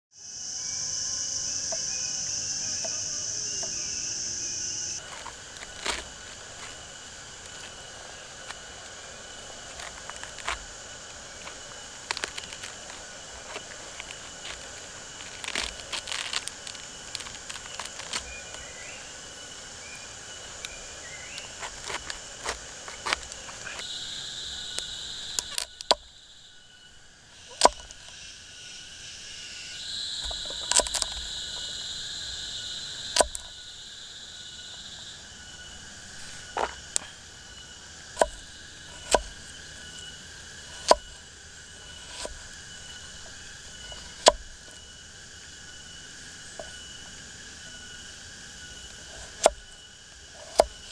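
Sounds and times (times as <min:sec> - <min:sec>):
high insect drone: 0:00.1 - 0:50.9
insects chirping: 0:00.1 - 0:50.9.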